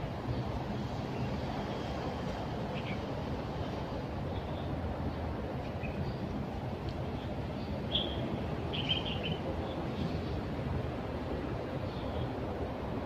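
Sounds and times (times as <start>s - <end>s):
street traffic rumble: 0.0s - 13.0s
bird chirps: 7.6s - 9.4s.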